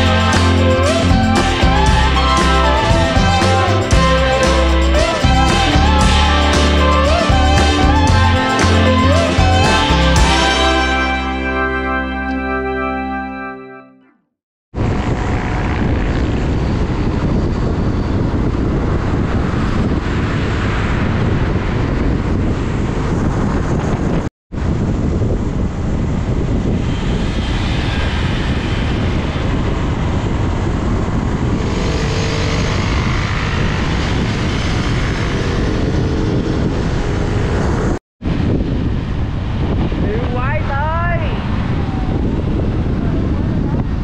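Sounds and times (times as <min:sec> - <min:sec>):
road noise: 0:00.0 - 0:12.9, 0:14.8 - 0:44.0
wind rushing over microphone: 0:14.7 - 0:44.0
motorbike engine: 0:28.3 - 0:38.0.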